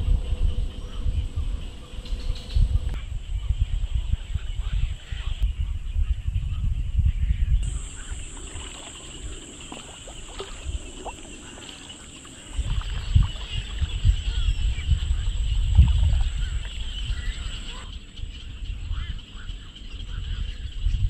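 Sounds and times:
wind rumbling on microphone: 0.0s - 21.0s
insects singing: 7.6s - 18.2s.

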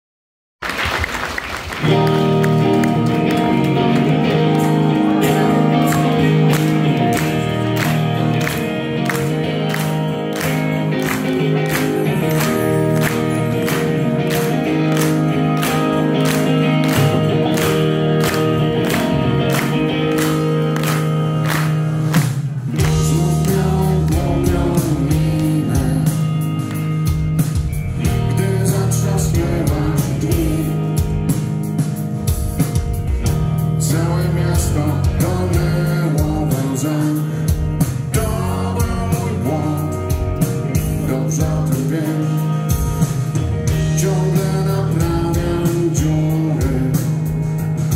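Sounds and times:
live rock band: 0.6s - 47.9s
man singing: 5.1s - 7.3s, 22.7s - 26.5s, 28.0s - 31.1s, 33.7s - 43.0s, 43.7s - 47.5s.

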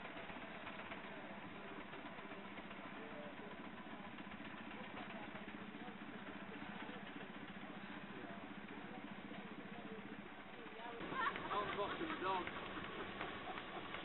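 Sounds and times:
miniature traction engine running: 0.0s - 14.0s.

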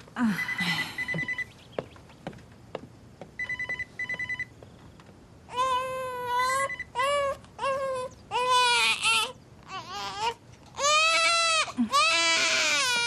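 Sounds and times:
infant crying: 5.5s - 13.0s.

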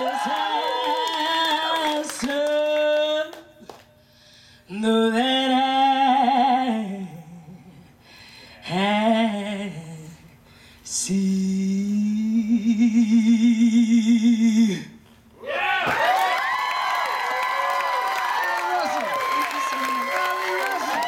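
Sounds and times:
audience cheering and applauding: 0.0s - 2.5s, 15.8s - 21.0s
woman singing: 0.0s - 3.7s, 4.7s - 7.8s, 8.6s - 10.3s.

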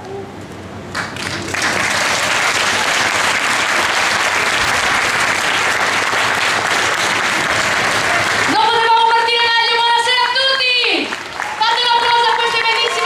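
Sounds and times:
audience applause: 0.9s - 8.8s, 11.1s - 13.0s.

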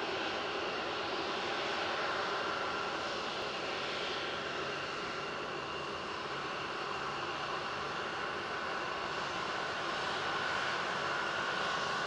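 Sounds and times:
jet engines taxiing: 0.0s - 12.0s.

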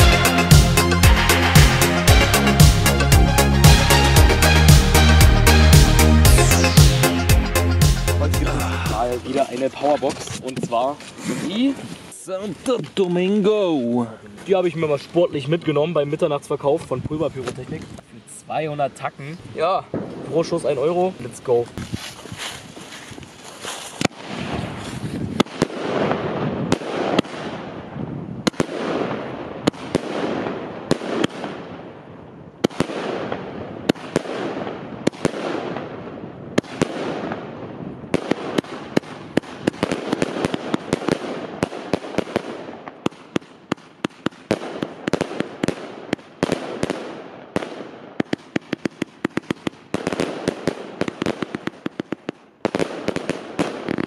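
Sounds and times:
firework crackling: 0.0s - 13.3s, 19.9s - 31.8s, 32.5s - 54.0s
firework launch reports: 8.2s - 21.8s.

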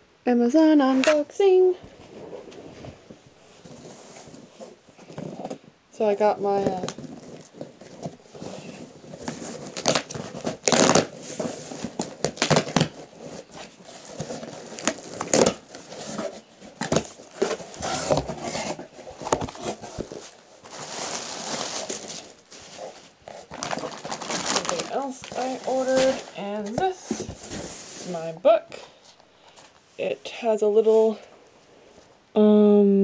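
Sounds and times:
packaging crinkling: 6.6s - 28.1s
cardboard box being torn open: 8.0s - 26.3s.

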